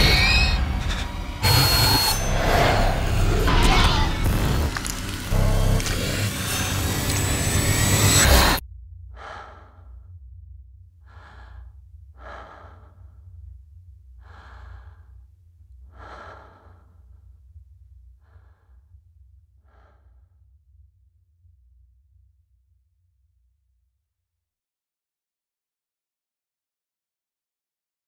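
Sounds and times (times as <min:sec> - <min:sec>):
steady low hum: 0:04.2 - 0:20.0
person breathing slowly: 0:04.9 - 0:10.2, 0:11.0 - 0:20.3.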